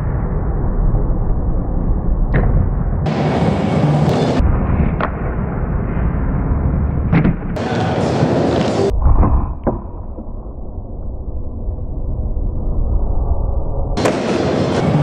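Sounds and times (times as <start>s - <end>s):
skateboard wheels rolling on concrete: 3.1s - 8.9s, 14.0s - 15.0s.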